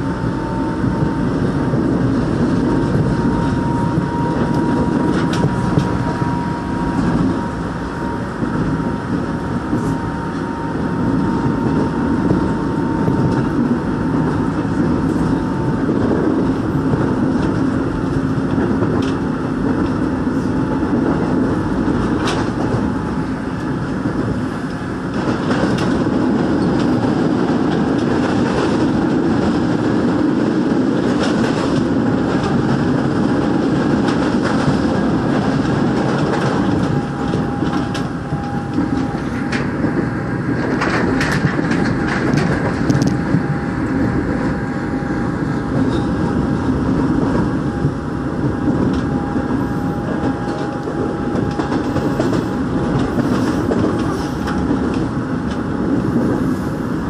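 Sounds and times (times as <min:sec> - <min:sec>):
train wheels rumbling on rails: 0:00.0 - 0:57.0
clicks over the rails: 0:31.0 - 0:44.0.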